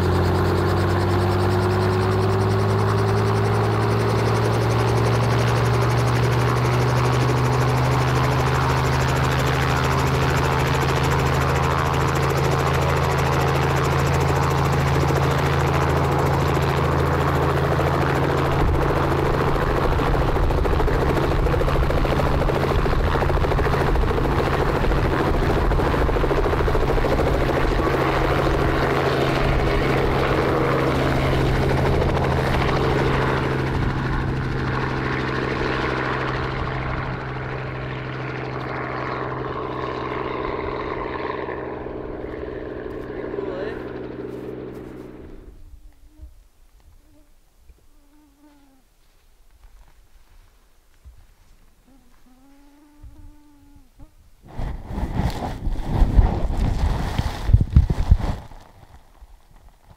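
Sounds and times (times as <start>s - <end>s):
deep helicopter rumble: 0.0s - 46.6s, 51.7s - 59.9s
helicopter rotor drone: 0.0s - 47.2s.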